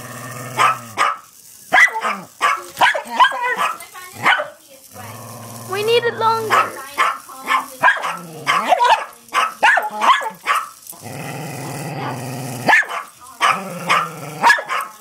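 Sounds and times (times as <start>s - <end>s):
dog growling low: 0.0s - 1.0s, 4.9s - 6.8s, 8.1s - 8.7s, 10.9s - 12.7s, 13.5s - 14.5s
dogs barking sharply: 0.6s - 4.6s, 6.4s - 10.8s, 12.6s - 15.0s.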